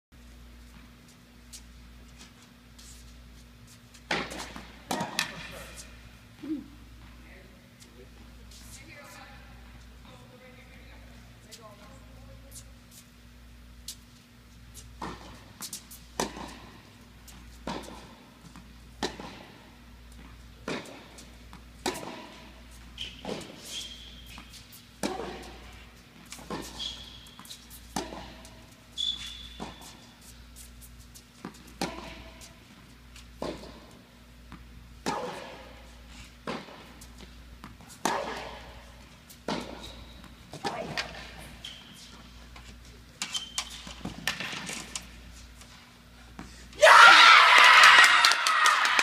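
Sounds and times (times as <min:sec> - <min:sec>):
steady low hum: 0:00.2 - 0:46.8
shoes squeaking on court: 0:00.6 - 0:13.2, 0:13.8 - 0:46.6
tennis rackets hitting ball: 0:04.0 - 0:05.8, 0:15.0 - 0:28.8, 0:31.4 - 0:41.6, 0:42.5 - 0:45.2.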